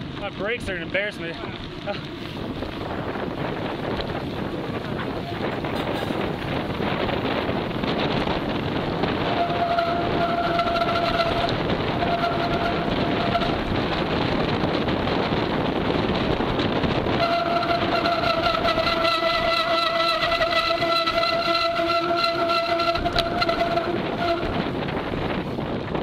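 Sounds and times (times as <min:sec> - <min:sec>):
wind noise: 0:00.0 - 0:26.0
bike brakes squealing: 0:09.2 - 0:13.7, 0:17.2 - 0:24.6.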